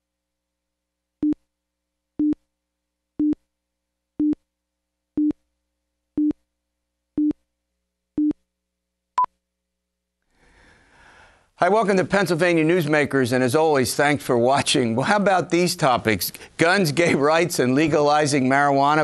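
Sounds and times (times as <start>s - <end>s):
low-pitched countdown beeps: 4.2s - 4.4s.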